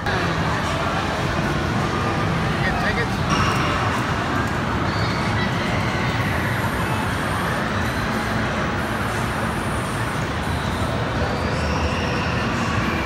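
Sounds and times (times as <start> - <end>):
indoor amusement park din: 0.0 - 13.0
spinning swing ride running: 0.0 - 13.0.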